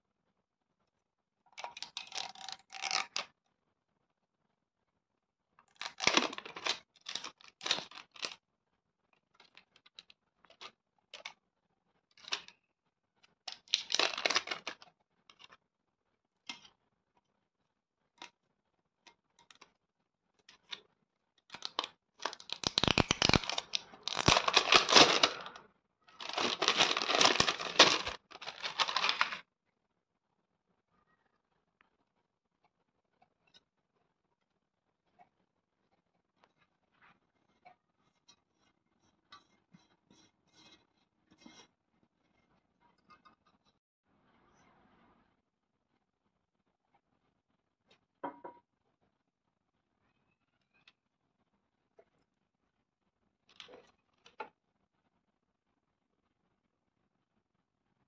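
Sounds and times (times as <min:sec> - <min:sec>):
plastic wrapping tearing and crinkling: 0:01.6 - 0:03.3, 0:05.7 - 0:08.4, 0:13.5 - 0:14.9, 0:21.5 - 0:25.6, 0:26.2 - 0:29.4.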